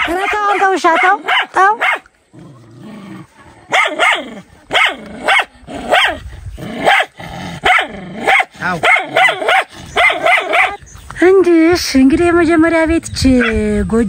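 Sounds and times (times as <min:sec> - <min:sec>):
dog barking: 0:00.0 - 0:02.1, 0:03.7 - 0:06.2, 0:06.8 - 0:10.8.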